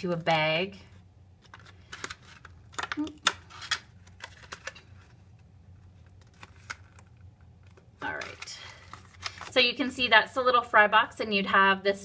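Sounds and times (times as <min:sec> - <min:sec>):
cardstock crackling and clicking: 0:01.4 - 0:09.6.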